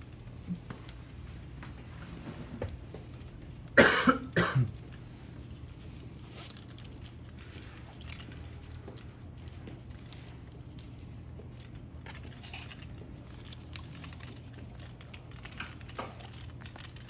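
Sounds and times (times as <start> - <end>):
person coughing: 3.7 - 4.8.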